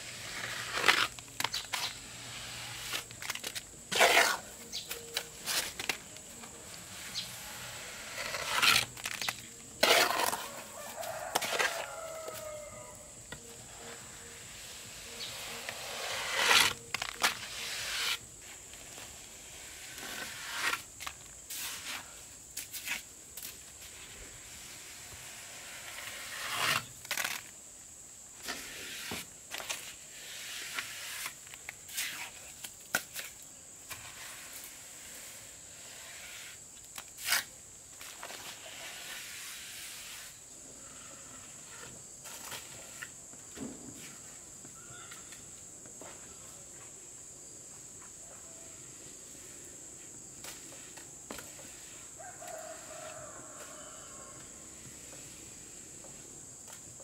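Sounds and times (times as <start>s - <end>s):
trowel scraping concrete blocks: 0.0s - 27.0s, 28.4s - 43.2s
rooster crowing: 10.3s - 13.2s, 52.2s - 54.6s.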